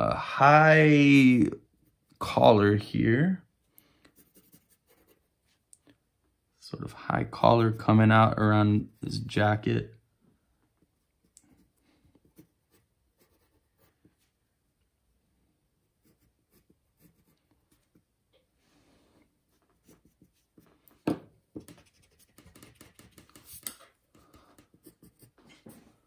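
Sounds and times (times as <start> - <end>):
pencil scratching on paper: 4.1 - 5.3, 11.5 - 14.3, 15.9 - 18.1, 19.5 - 20.8, 21.6 - 25.9.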